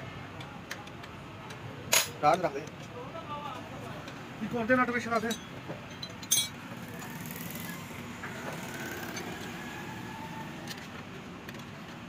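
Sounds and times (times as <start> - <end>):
traffic noise: 0.0 - 12.0
metallic clink: 5.3 - 6.6.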